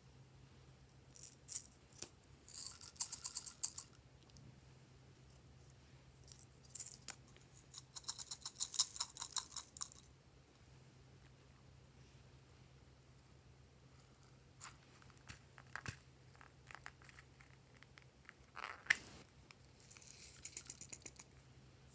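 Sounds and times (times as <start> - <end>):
sprinkles rattling in plastic containers: 2.5 - 4.0, 6.3 - 10.1, 19.8 - 21.3.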